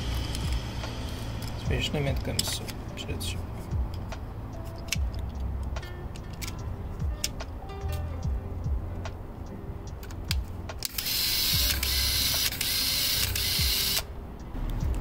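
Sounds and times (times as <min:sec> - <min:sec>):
camera motor whirring: 0:10.8 - 0:14.1
film camera clicks: 0:10.8 - 0:14.1.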